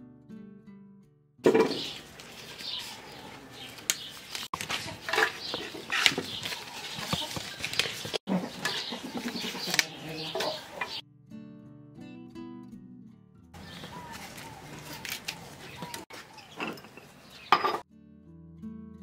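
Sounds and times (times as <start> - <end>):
birds calling: 1.5 - 11.0, 13.6 - 17.8
leaves rustling as torn off: 1.9 - 8.2, 13.6 - 16.1.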